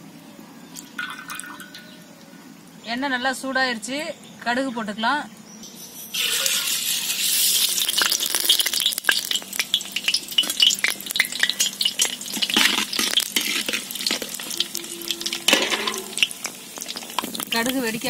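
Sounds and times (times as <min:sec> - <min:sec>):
hot oil hissing: 0:06.0 - 0:18.0
seeds popping in oil: 0:06.2 - 0:18.0.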